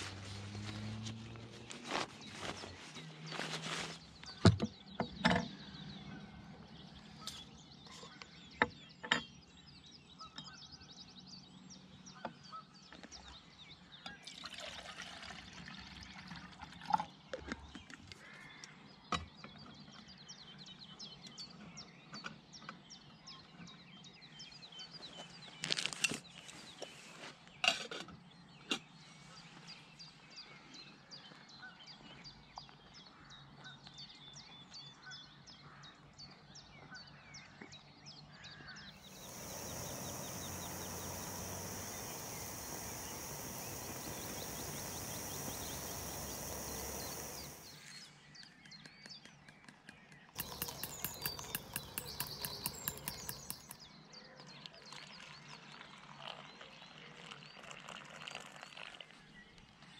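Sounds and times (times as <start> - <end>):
birds singing: 0.0 - 15.4, 28.3 - 57.6
metal clinks and knocks: 50.4 - 53.8.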